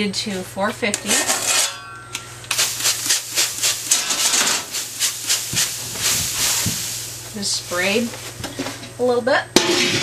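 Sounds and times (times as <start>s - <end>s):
spray bottle squirts: 2.5s - 7.4s.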